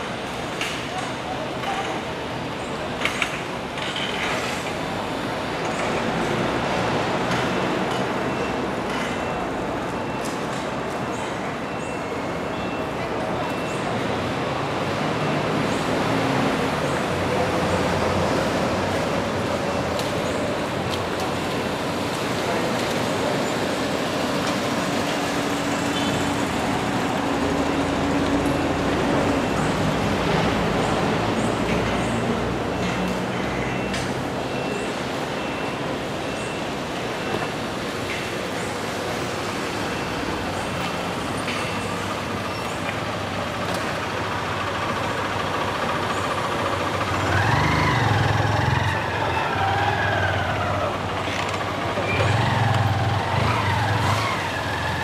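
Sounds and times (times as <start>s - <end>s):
urban traffic noise: 0.0s - 55.0s
vehicle engine revving: 47.0s - 55.0s.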